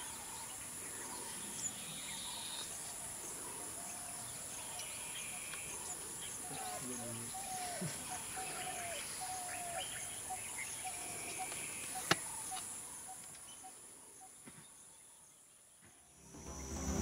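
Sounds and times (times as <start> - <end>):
birds whistling and chirping: 6.3 - 12.6.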